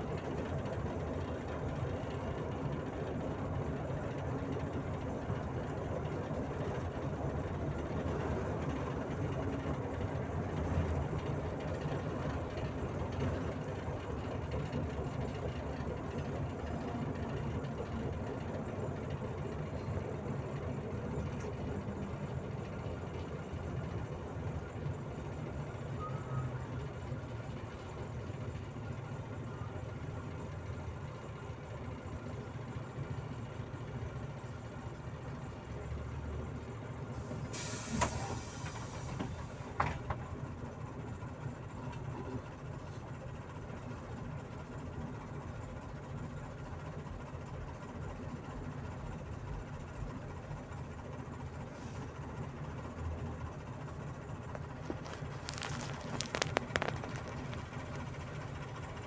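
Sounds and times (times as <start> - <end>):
bus engine and road rumble: 0.0 - 59.0
air brakes hissing: 37.1 - 39.9.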